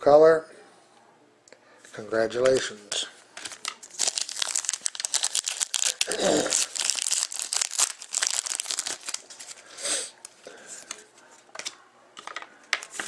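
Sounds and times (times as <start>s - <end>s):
foil wrapper tearing and crinkling: 3.4s - 9.7s.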